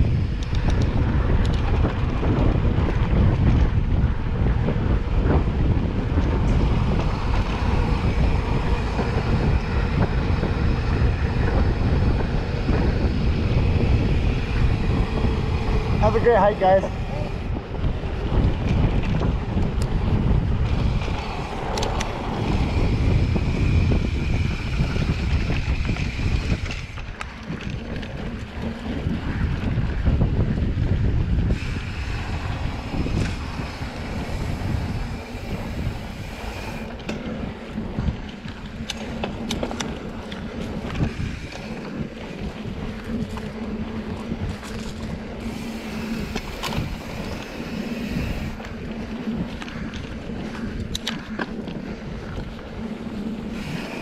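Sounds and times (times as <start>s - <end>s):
bike clicks and knocks: 0.0s - 16.6s, 17.8s - 54.0s
bike tyre noise: 0.0s - 54.0s
wind rumble on microphone: 0.0s - 54.0s.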